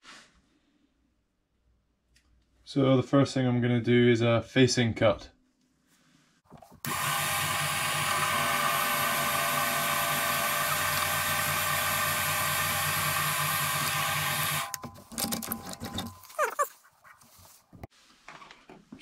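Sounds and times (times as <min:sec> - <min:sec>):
lathe motor whining: 0:06.8 - 0:14.8.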